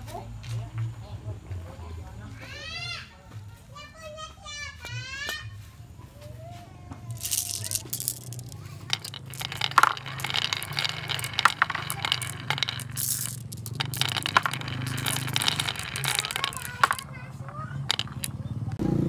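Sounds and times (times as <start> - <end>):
marbles clattering on wooden track: 7.1 - 18.6.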